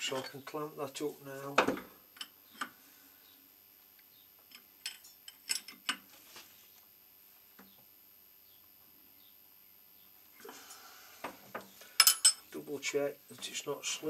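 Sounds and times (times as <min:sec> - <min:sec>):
spanner clinking on metal nut: 0:12.0 - 0:12.4.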